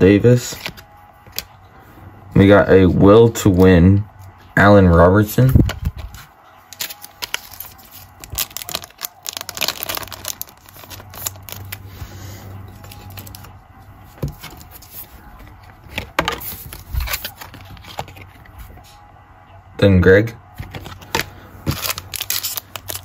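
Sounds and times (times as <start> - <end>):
plastic card sleeve crinkling: 0.3 - 1.5, 5.5 - 18.8, 20.6 - 23.0
card sleeve rustling: 0.4 - 1.5, 5.5 - 18.8, 20.6 - 23.0.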